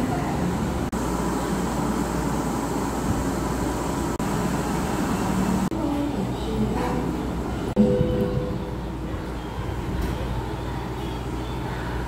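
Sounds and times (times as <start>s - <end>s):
low hum: 7.7s - 10.0s.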